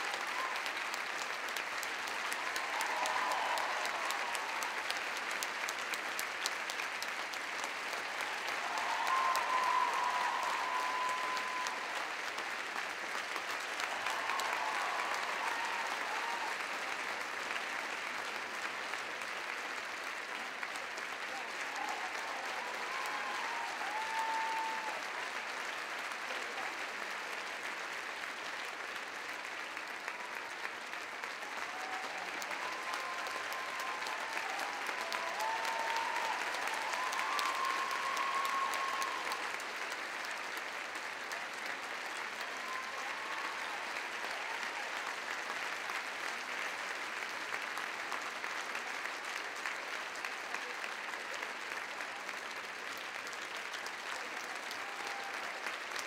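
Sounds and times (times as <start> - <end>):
audience applauding: 0.0 - 56.0
calls from the crowd: 0.0 - 56.0.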